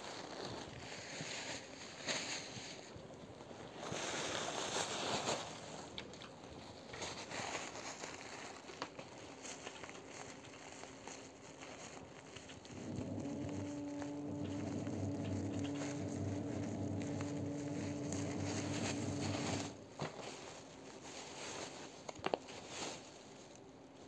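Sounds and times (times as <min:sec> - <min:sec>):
packaging rustling and clicking: 0:03.8 - 0:23.6
motor humming: 0:12.6 - 0:19.8.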